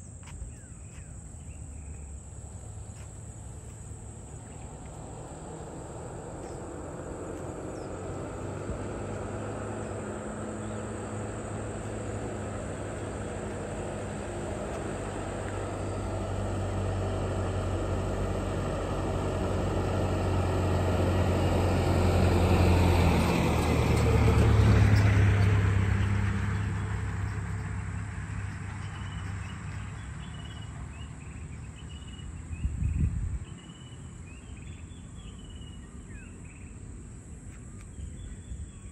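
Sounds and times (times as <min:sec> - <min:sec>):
truck engine passing by: 0:02.5 - 0:32.6.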